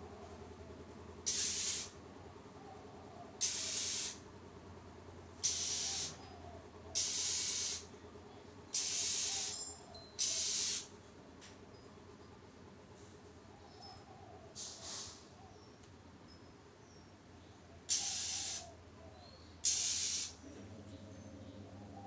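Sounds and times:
low steady hum: 0.0s - 14.6s, 15.3s - 22.0s
bird giving harsh rasping calls: 1.2s - 2.0s, 3.2s - 4.3s, 5.4s - 7.9s, 8.7s - 10.9s, 17.8s - 18.8s, 19.6s - 20.4s.

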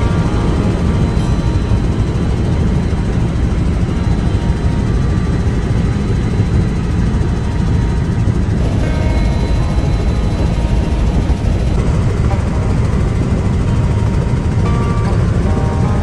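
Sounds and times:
helicopter engine and rotor: 0.0s - 16.0s.

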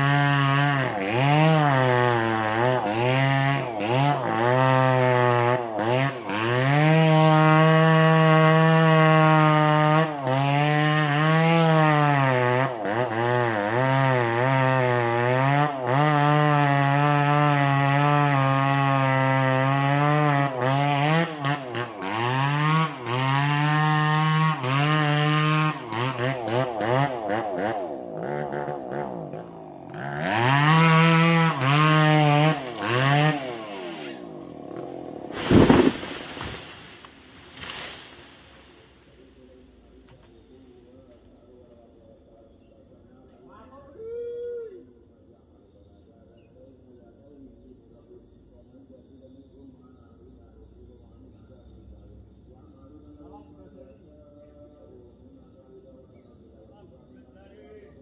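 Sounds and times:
chainsaw cutting wood: 0.0s - 39.2s.

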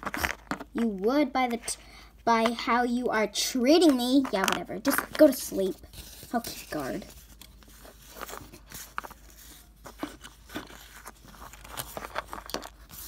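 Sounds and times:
plastic figures clicking and tapping: 3.8s - 5.4s.

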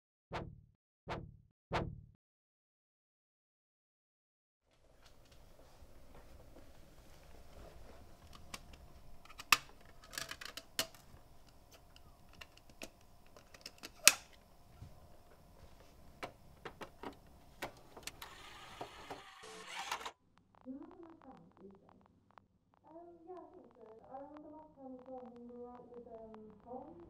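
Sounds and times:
plastic disc case clicks and rattles: 8.3s - 11.1s, 12.0s - 14.4s.

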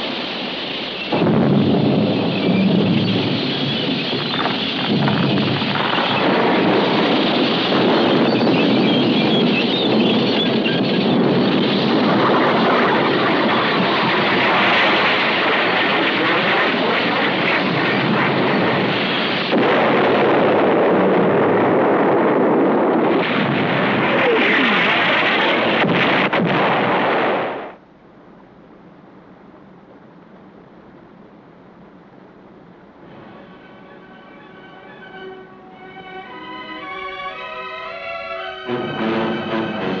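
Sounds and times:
explosions: 0.0s - 27.8s, 38.7s - 40.0s
gunfire: 19.4s - 21.2s.

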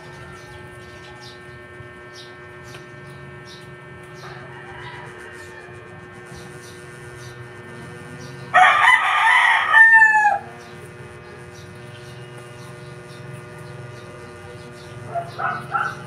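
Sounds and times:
rooster crowing: 0.0s - 1.4s, 4.2s - 6.3s, 8.5s - 10.7s
electrical hum: 0.0s - 16.0s.

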